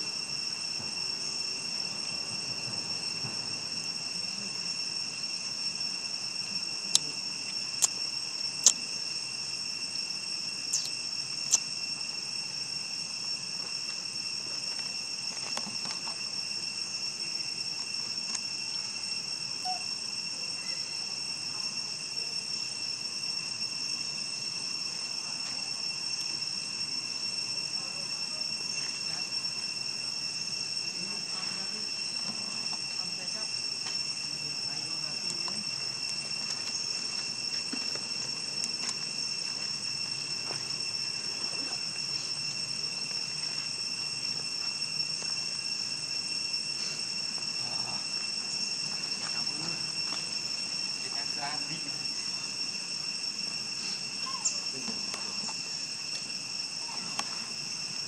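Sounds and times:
insect chorus drone: 0.0s - 58.0s.

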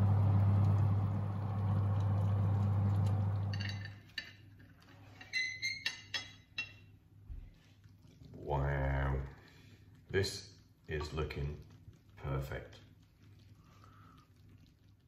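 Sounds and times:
fan oven humming: 0.0s - 7.6s
metal ring clinking on plate: 3.5s - 4.4s.

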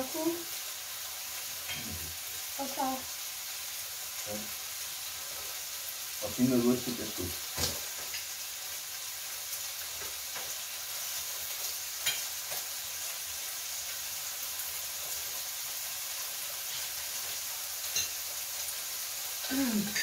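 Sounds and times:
food sizzling on grill: 0.0s - 20.0s
tongs and cutlery clicks: 12.0s - 12.6s, 17.9s - 18.2s.

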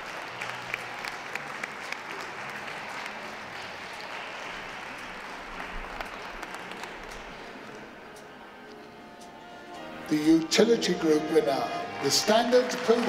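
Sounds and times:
audience applauding: 0.0s - 7.6s, 10.2s - 13.0s.

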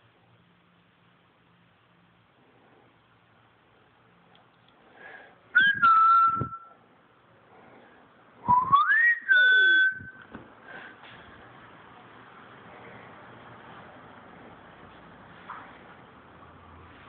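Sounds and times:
person whistling: 5.6s - 6.8s, 8.4s - 10.3s.

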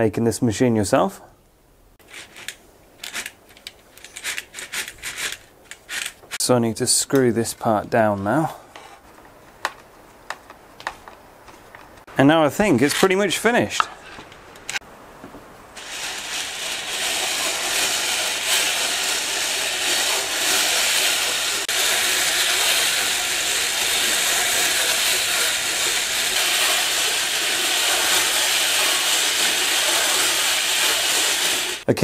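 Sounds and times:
hand-cranked knitting machine turning: 2.1s - 6.4s, 15.8s - 31.9s.

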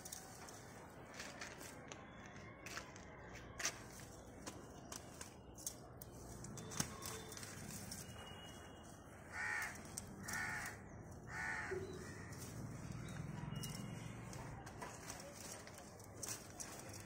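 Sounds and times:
leaves and stems snapping: 4.4s - 8.0s, 9.5s - 11.3s, 12.2s - 17.0s
crow cawing: 9.3s - 12.4s.

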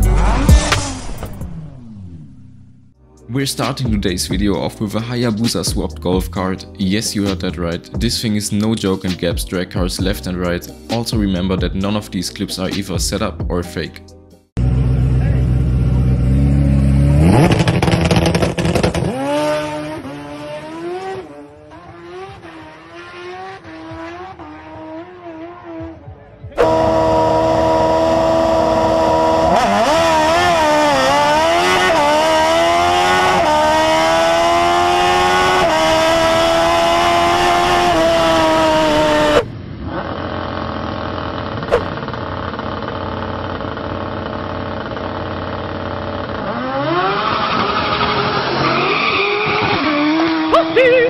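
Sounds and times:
engine revving through gears: 0.0s - 3.0s, 14.6s - 26.0s, 26.6s - 50.8s
quieter engine running: 14.6s - 47.1s.

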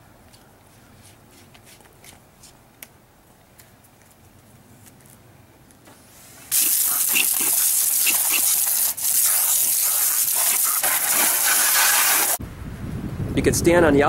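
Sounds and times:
water jets spraying on pavement: 6.5s - 12.4s.

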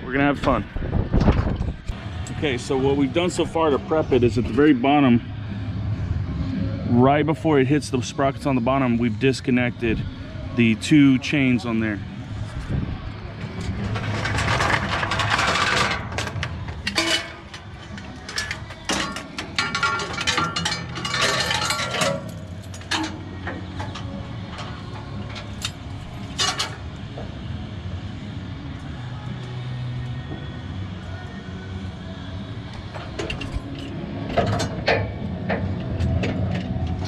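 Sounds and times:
wind noise: 0.0s - 2.1s, 12.3s - 15.1s
metal chain clinking: 13.6s - 26.9s.

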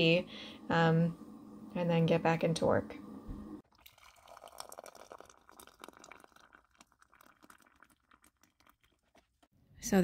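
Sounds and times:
hot water pouring into glass mug: 3.6s - 9.5s.

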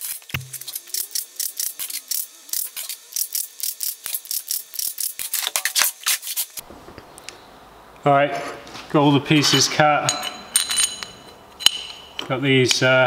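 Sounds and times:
steel plates clinking: 9.3s - 12.8s.

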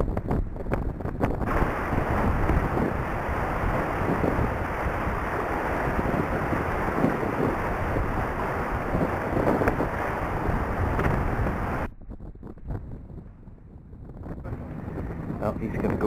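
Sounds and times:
wind buffeting microphone: 0.0s - 16.0s
water rushing past hulls: 1.2s - 11.9s.

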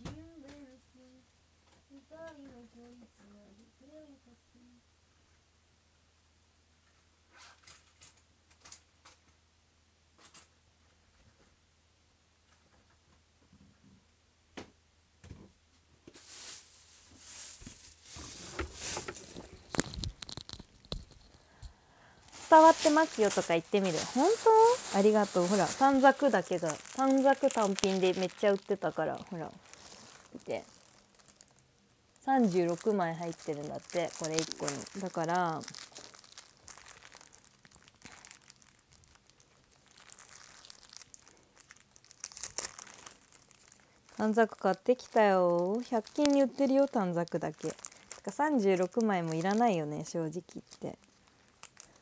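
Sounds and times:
rustling and handling noises: 6.9s - 9.4s, 15.7s - 52.0s
packaging crinkling: 16.2s - 52.0s.

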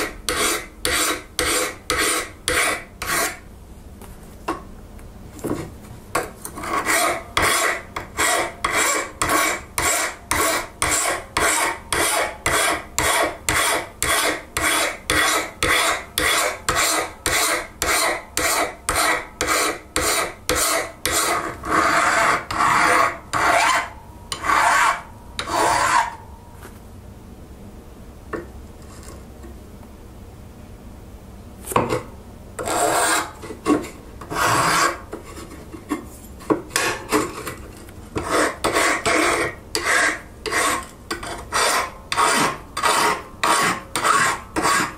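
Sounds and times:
hand file rasping on steel: 0.0s - 3.4s, 6.6s - 26.2s, 32.6s - 35.4s, 38.2s - 44.9s.

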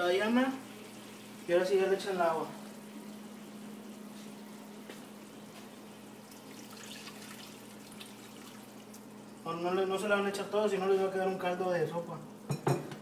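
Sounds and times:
low steady hum: 0.0s - 13.0s
water trickling into pan: 6.2s - 9.5s.

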